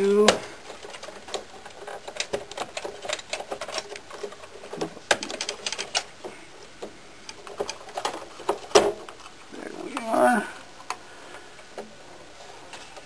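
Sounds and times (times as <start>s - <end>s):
cable connectors clicking and rattling: 0.0s - 10.1s.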